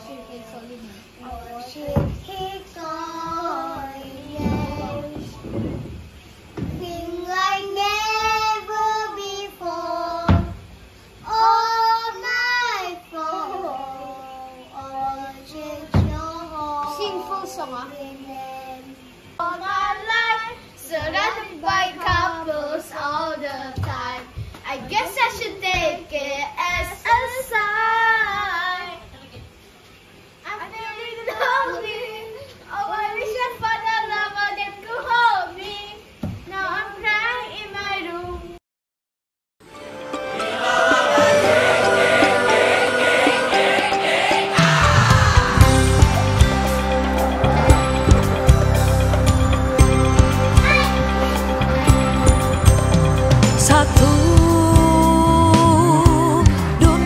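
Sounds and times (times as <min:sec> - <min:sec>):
child singing: 0:00.0 - 0:05.8, 0:06.6 - 0:29.1, 0:30.5 - 0:38.6, 0:53.7 - 0:57.0.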